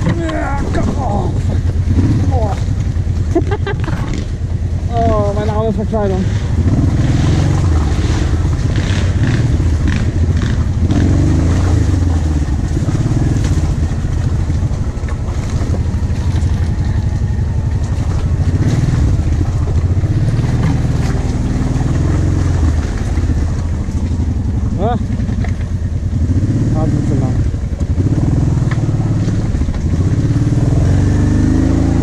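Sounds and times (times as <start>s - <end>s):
quad bike engine running: 0.0s - 32.0s.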